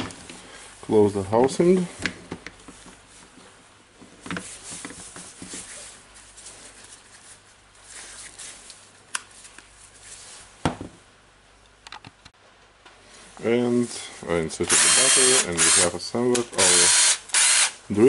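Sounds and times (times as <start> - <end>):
plastic rustling and scraping: 1.3 - 10.6.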